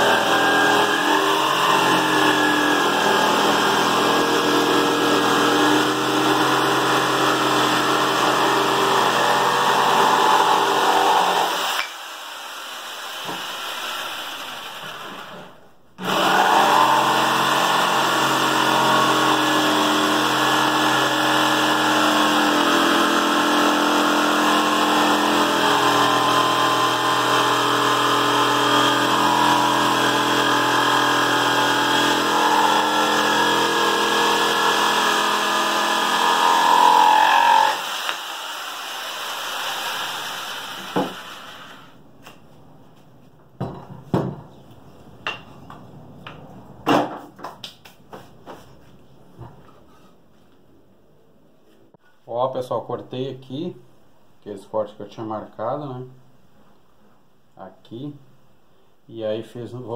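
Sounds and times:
electric jigsaw cutting wood: 0:00.0 - 0:15.3, 0:16.0 - 0:42.0.

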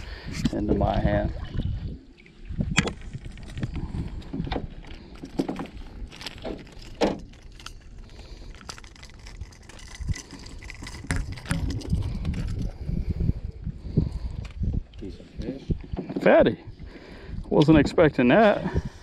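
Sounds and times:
metallic hook clicks and rattles: 0:06.1 - 0:12.7.

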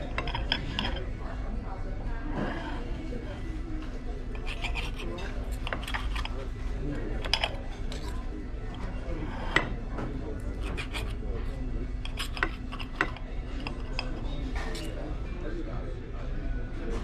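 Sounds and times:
cutlery clinking on a plate: 0:00.0 - 0:01.1, 0:04.4 - 0:06.4, 0:07.0 - 0:11.2, 0:12.0 - 0:15.1.

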